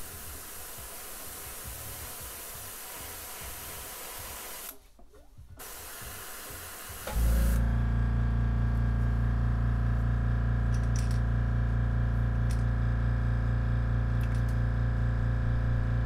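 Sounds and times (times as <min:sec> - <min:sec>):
air compressor humming: 0:05.6 - 0:16.0.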